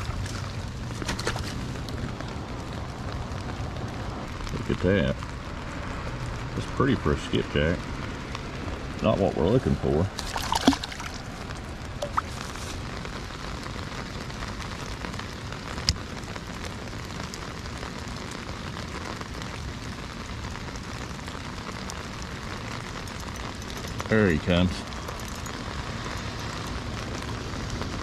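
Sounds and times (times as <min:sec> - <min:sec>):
rain falling on water: 0:00.0 - 0:28.0
fish splashing: 0:10.1 - 0:12.7.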